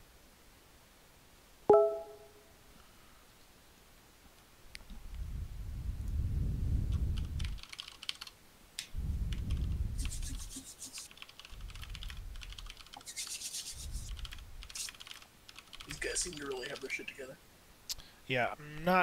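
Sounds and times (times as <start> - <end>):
rubbing and handling noise: 9.5 - 17.0.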